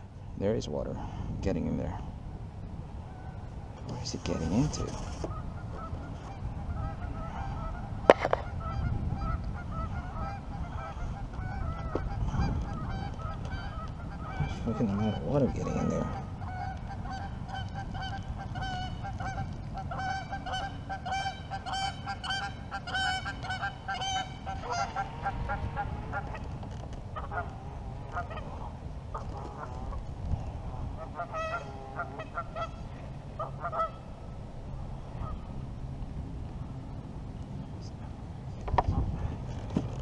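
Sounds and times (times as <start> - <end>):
geese honking: 4.2 - 30.0, 30.9 - 34.2.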